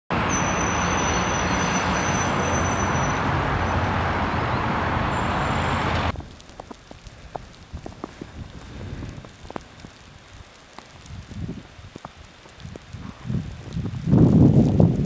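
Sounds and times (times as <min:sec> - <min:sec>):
road traffic rumble: 0:00.1 - 0:10.5
thin high whistle: 0:00.2 - 0:03.9
faint ticks and crackles: 0:06.1 - 0:15.0.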